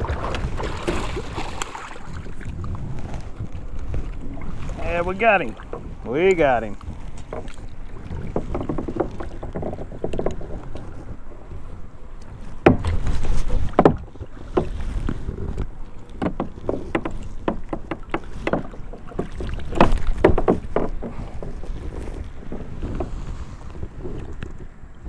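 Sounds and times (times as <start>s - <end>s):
wind buffeting microphone: 0.0s - 25.0s
knocks and clatter of handling: 7.1s - 11.0s, 12.6s - 23.1s.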